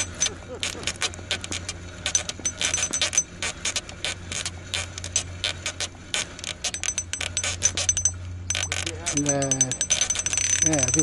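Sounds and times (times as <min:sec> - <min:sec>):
fishing reel clicking: 0:00.0 - 0:11.0
steady low hum: 0:00.0 - 0:11.0.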